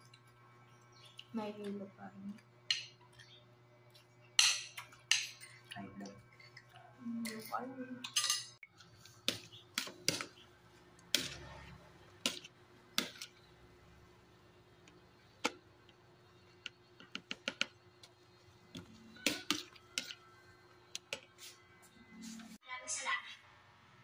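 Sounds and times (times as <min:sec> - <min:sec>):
cutlery clinking on dishes: 0:04.4 - 0:05.6, 0:07.3 - 0:08.6
spoon stirring in plastic tub: 0:18.8 - 0:20.2.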